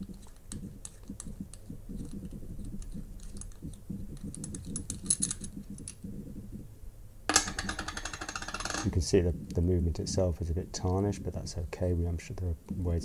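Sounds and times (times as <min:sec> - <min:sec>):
metal ticks and scrapes: 0:00.0 - 0:06.0, 0:07.3 - 0:09.0.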